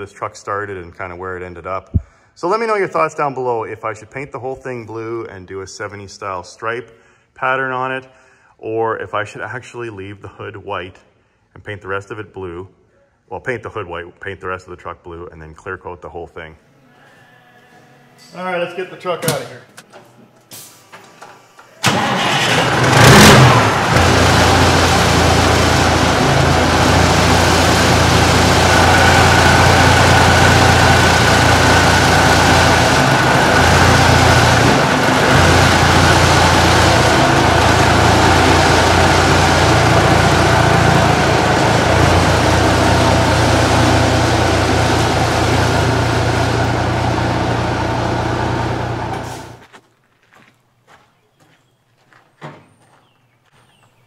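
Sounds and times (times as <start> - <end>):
diesel engine starting and idling: 21.8 - 49.6.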